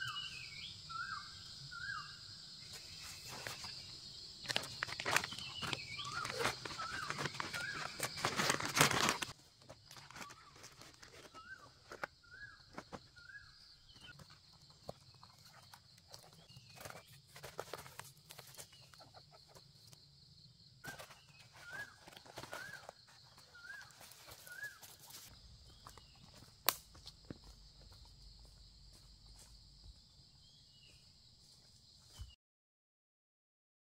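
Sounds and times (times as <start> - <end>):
insect drone: 0.0 - 32.2
plastic bag and cord rustling: 4.4 - 12.1.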